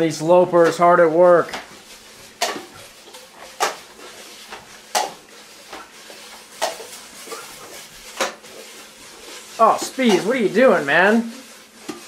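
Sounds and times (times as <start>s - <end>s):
dishes clacking: 4.5s - 8.8s.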